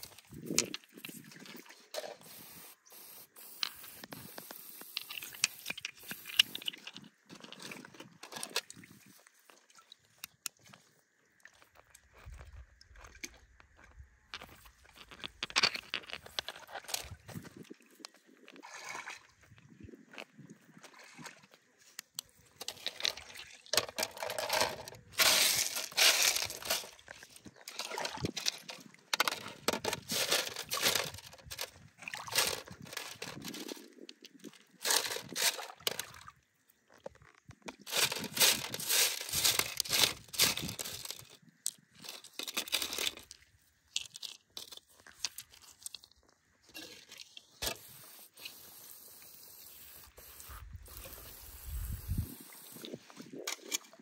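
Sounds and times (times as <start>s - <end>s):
stones scraping on metal sieve: 23.8s - 31.6s, 37.8s - 41.3s.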